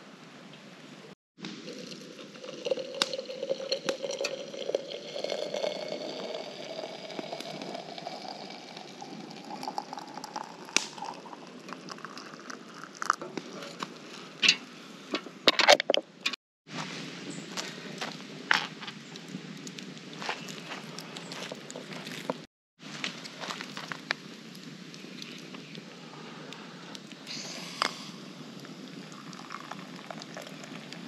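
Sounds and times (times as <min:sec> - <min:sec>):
water pouring into teapot: 0:01.6 - 0:13.2, 0:29.0 - 0:31.0.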